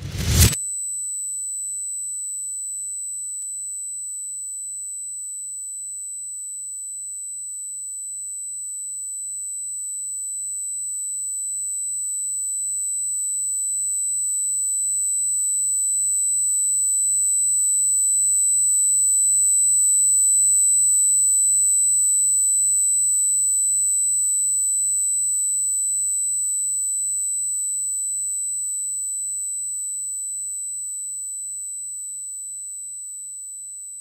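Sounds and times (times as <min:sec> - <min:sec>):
high-pitched electronic tone: 0:00.0 - 0:00.6.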